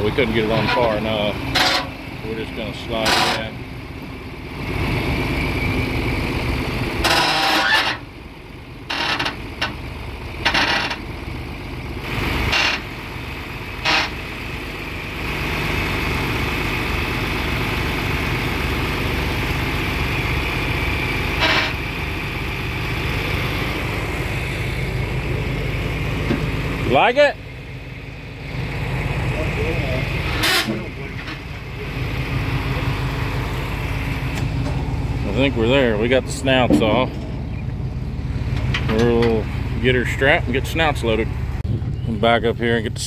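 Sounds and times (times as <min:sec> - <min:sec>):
tractor engine under load: 0:00.0 - 0:43.0.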